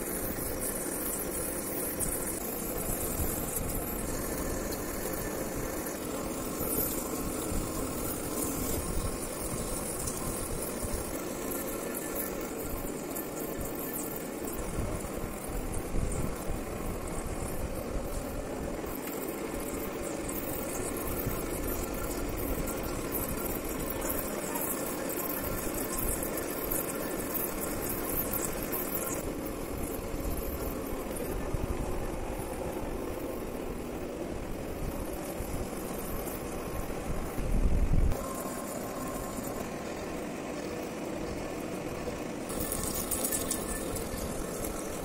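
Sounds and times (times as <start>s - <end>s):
metal lathe cutting: 0.0s - 37.4s, 38.2s - 45.0s
high hiss: 0.0s - 45.0s.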